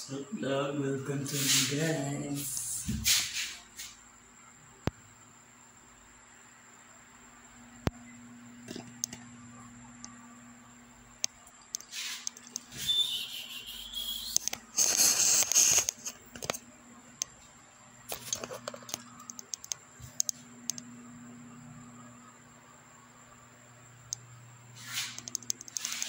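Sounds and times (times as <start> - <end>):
phone handling rubbing and rustling: 18.1 - 19.3.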